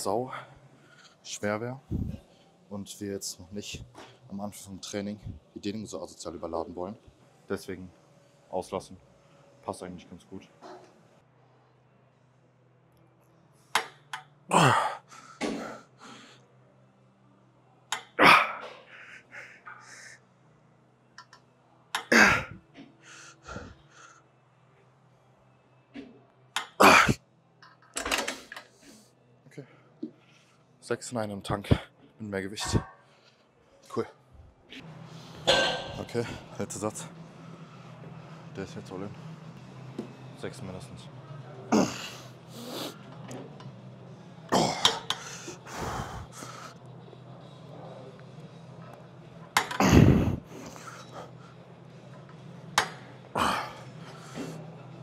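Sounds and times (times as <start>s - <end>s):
man breathing and grunting: 14.5s - 16.5s, 18.0s - 20.2s, 22.0s - 24.3s, 26.8s - 27.2s, 41.7s - 43.0s, 44.5s - 46.8s, 49.8s - 51.7s, 53.2s - 54.7s.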